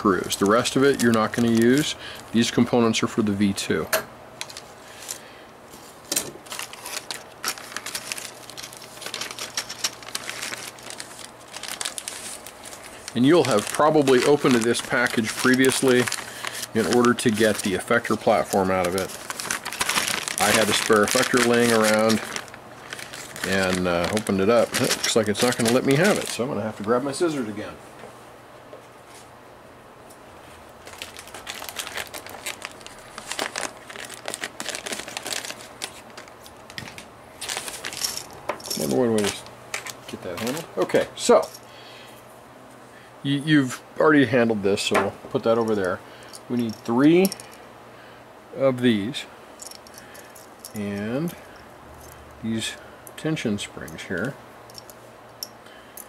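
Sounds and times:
plastic bag crinkling: 0.2s - 2.4s, 6.4s - 27.3s, 30.8s - 40.7s.

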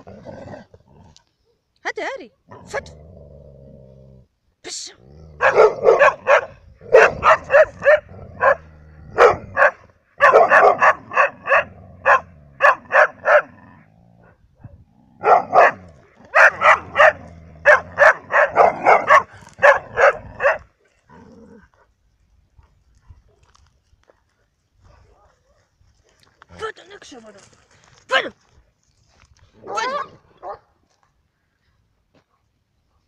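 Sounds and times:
dog barking: 5.4s - 13.5s, 15.2s - 20.7s, 29.6s - 30.7s.

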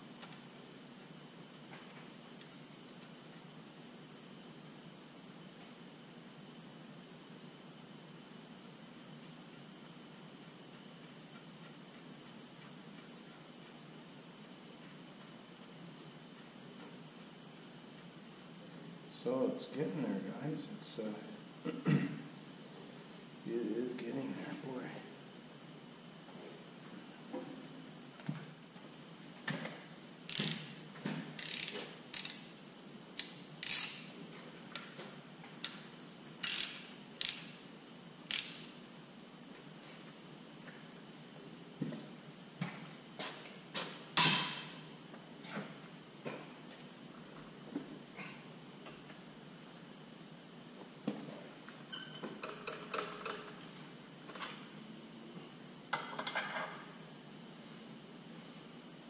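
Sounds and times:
socket ratchet clicking: 30.3s - 30.8s, 31.4s - 32.5s, 33.2s - 34.1s, 35.6s - 37.6s, 38.3s - 38.7s.

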